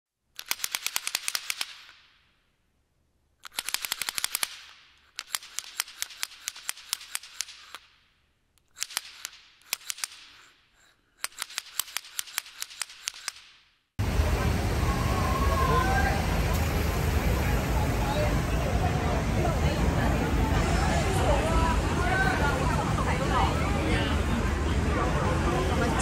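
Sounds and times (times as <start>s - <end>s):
firecrackers popping: 3.5s - 13.7s.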